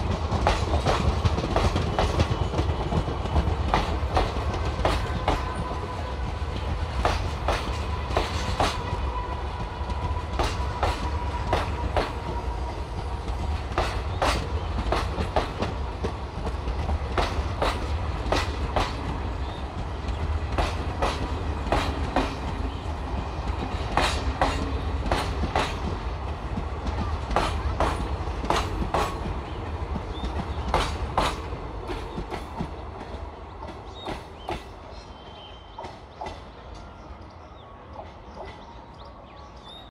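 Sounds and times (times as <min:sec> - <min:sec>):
wheels clacking over rail joints: 0:00.0 - 0:34.8
train rumbling past: 0:00.0 - 0:39.9.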